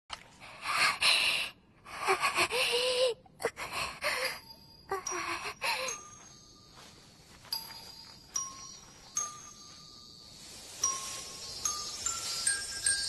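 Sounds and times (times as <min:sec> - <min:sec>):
woman gasping and panting: 0:00.6 - 0:06.1.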